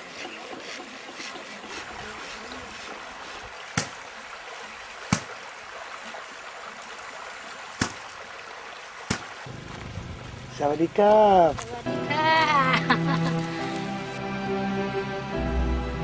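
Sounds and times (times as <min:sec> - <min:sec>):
stream running over rocks: 0:00.0 - 0:12.5
grass slapping against stones: 0:03.7 - 0:04.0, 0:05.1 - 0:05.4, 0:07.8 - 0:08.0, 0:09.0 - 0:09.4.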